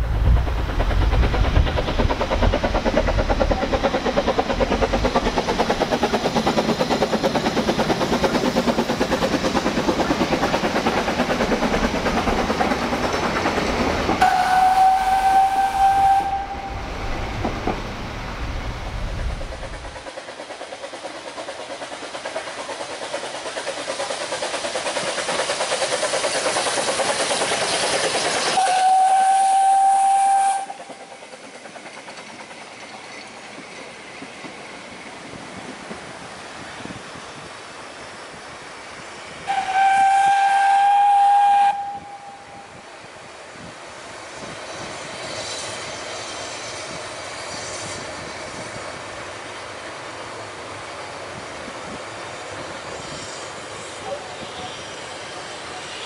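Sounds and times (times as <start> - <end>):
steam train passing: 0.0 - 56.0
steam whistle blasts: 14.2 - 16.9, 28.5 - 30.9, 39.5 - 42.8.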